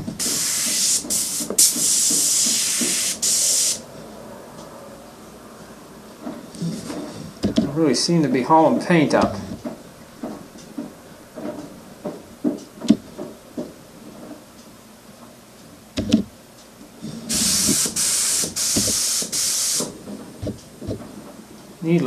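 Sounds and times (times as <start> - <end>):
airbrush hissing air bursts: 0.2 - 3.8, 17.3 - 20.0
handling clicks and knocks: 6.2 - 7.8, 9.1 - 13.8, 16.0 - 16.3, 20.0 - 21.4.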